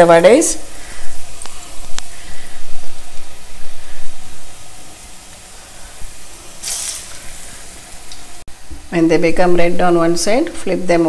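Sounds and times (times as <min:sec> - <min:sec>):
food deep-frying in hot oil: 0:00.0 - 0:11.0
batter dropped into sizzling oil: 0:06.6 - 0:07.3.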